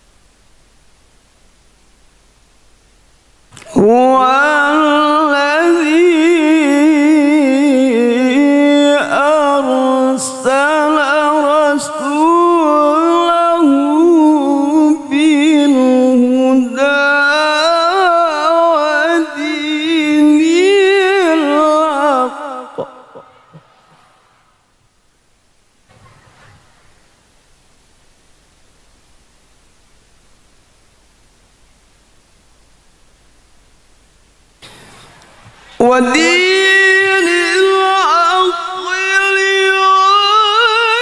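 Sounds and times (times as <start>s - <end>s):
man chanting into a microphone: 3.6s - 24.0s, 35.8s - 41.0s
short breaths: 23.3s - 24.8s.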